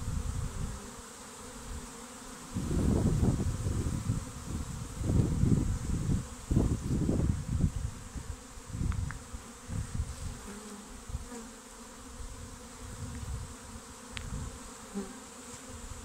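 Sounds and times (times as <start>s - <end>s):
bee swarm buzzing: 0.0s - 16.0s
single bees droning past: 0.0s - 16.0s.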